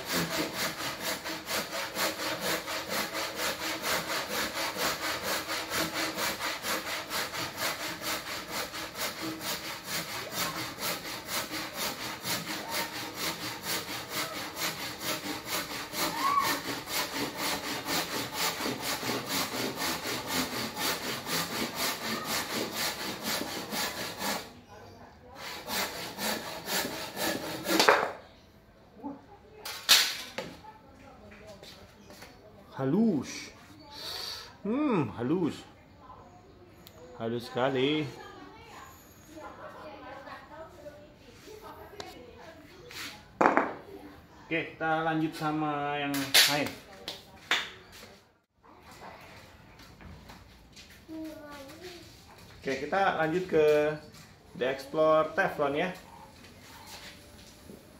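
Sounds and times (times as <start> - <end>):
hand saw cutting wood: 0.0 - 24.6, 25.4 - 28.2, 46.1 - 46.8.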